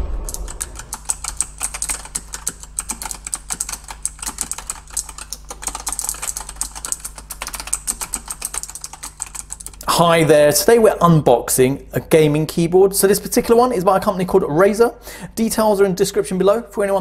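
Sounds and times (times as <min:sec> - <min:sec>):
fast typing on clicky keyboard: 0:00.3 - 0:09.9.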